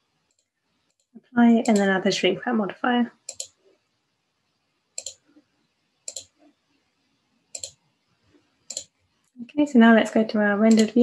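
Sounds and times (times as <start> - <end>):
computer mouse clicks: 0.3 - 1.9, 3.3 - 3.6, 5.0 - 5.2, 6.1 - 6.3, 7.6 - 7.8, 8.7 - 8.9, 10.7 - 11.0.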